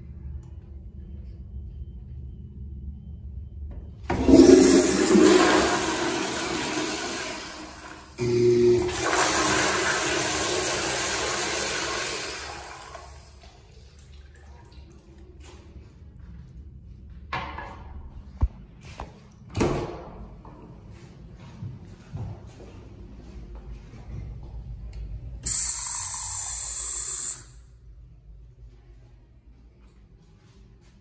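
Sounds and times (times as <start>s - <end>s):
toilet flushing water rush: 4.1s - 14.5s.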